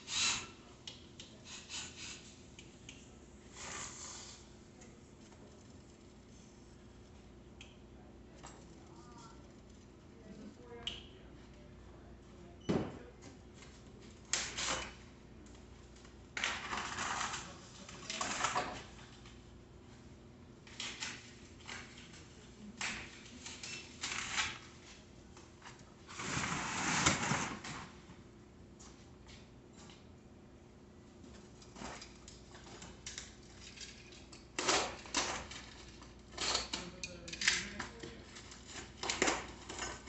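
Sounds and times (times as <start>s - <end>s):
parts and tools rattling and scraping: 31.5s - 40.0s.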